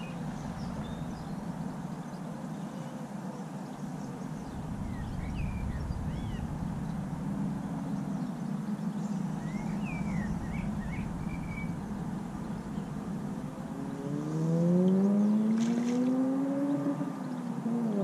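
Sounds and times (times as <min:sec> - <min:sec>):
steady low rumble: 0:00.0 - 0:02.6, 0:03.7 - 0:15.4
small birds chirping: 0:00.0 - 0:15.8.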